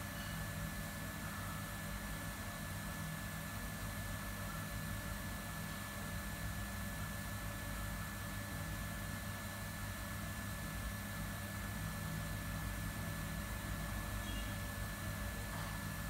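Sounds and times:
kitchen machinery humming: 0:11.6 - 0:16.0.

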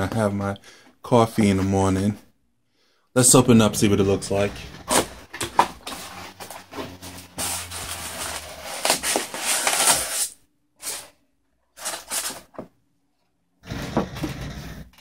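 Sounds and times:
cardboard and paper rustling: 0:04.3 - 0:11.2, 0:11.8 - 0:12.7.

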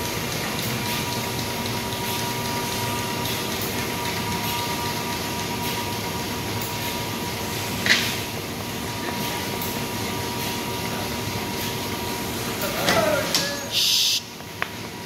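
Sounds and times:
machine hum with whine: 0:00.0 - 0:15.0.

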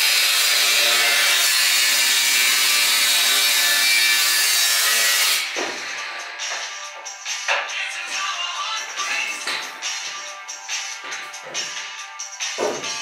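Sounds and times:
angle grinder cutting metal pipe: 0:00.0 - 0:06.1.

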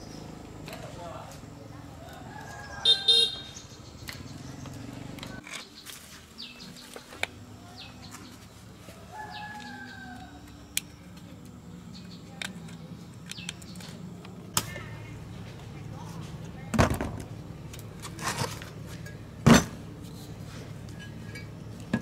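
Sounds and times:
birds chirping: 0:00.0 - 0:14.5.

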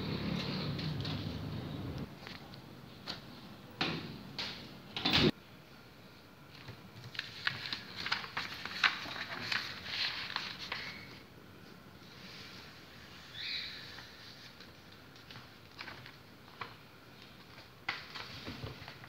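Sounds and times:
paper rustling and crackling: 0:06.5 - 0:11.2, 0:13.9 - 0:19.0.

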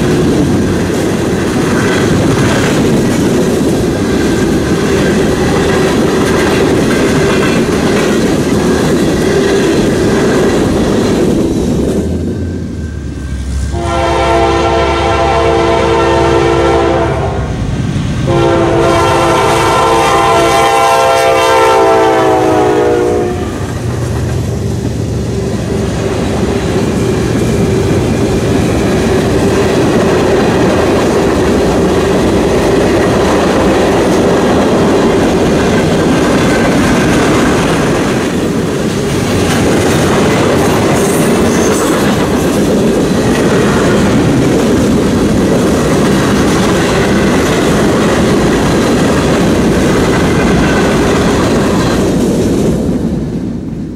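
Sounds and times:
freight cars rumbling on rails: 0:00.0 - 0:53.9
locomotive air horn: 0:13.7 - 0:17.6, 0:18.2 - 0:23.7.

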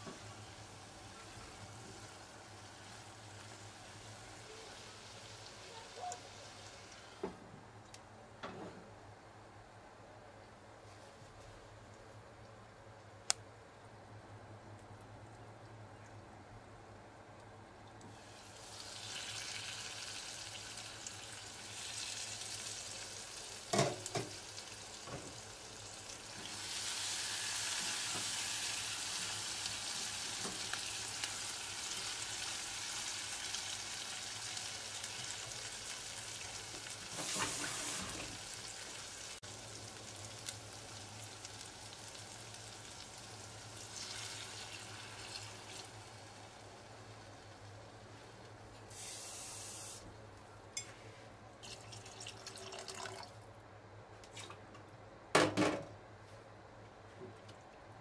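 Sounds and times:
shrimp sizzling in oil: 0:18.2 - 0:48.3, 0:48.9 - 0:50.1.

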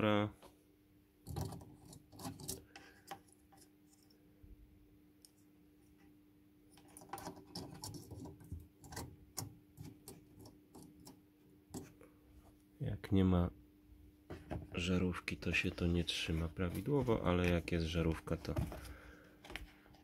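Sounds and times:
plastic clicks and scrapes: 0:01.2 - 0:04.2, 0:06.7 - 0:12.0.

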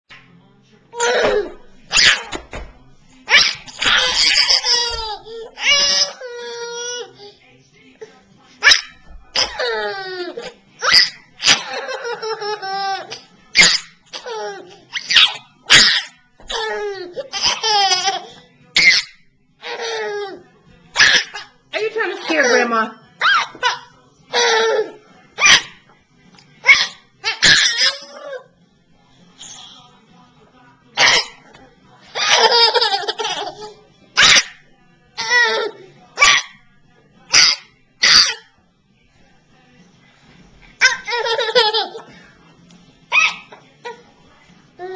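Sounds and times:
baby laughing: 0:03.3 - 0:07.4, 0:08.6 - 0:19.0, 0:32.1 - 0:33.8, 0:40.8 - 0:42.1.

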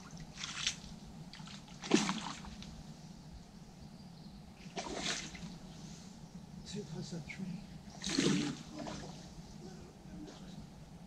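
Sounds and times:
fish splashing at the surface: 0:01.8 - 0:02.6, 0:04.7 - 0:05.5, 0:08.0 - 0:09.2.

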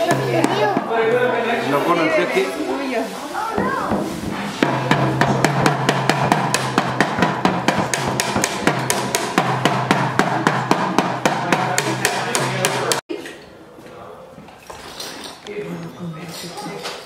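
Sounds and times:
toy drum kit beaten: 0:00.0 - 0:01.0, 0:03.9 - 0:13.1.

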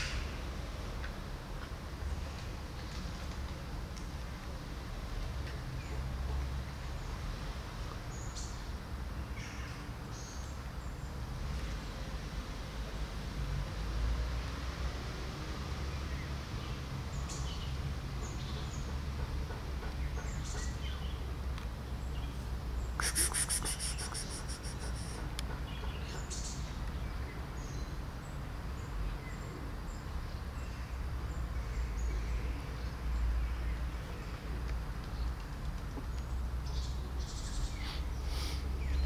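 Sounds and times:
small birds chirping: 0:19.9 - 0:39.0.

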